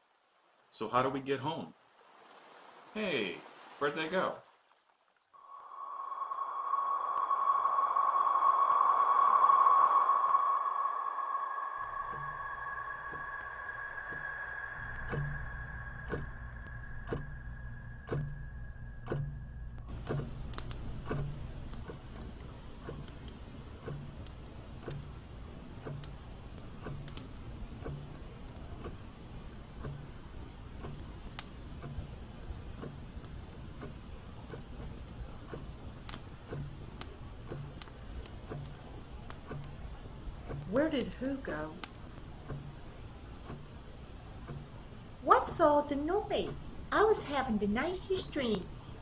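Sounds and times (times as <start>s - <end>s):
steady low hum: 5.4s - 49.0s
sharp bright clicks: 5.7s - 25.1s
clock ticking: 11.8s - 48.6s.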